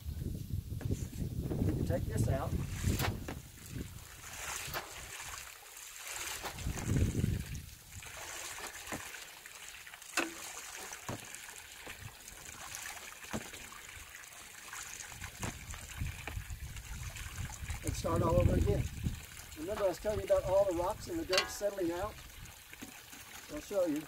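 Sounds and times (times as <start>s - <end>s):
water trickling: 1.8s - 24.0s
dull thump: 2.8s - 3.5s, 11.1s - 12.0s, 15.4s - 16.4s
fork tines scraping wet material: 4.2s - 6.8s.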